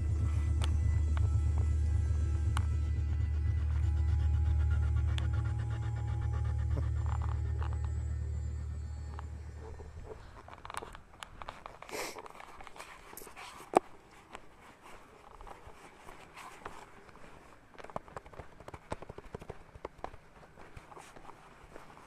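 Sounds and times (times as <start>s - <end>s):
footsteps: 5.0s - 22.0s
scuffs and taps: 10.2s - 22.0s.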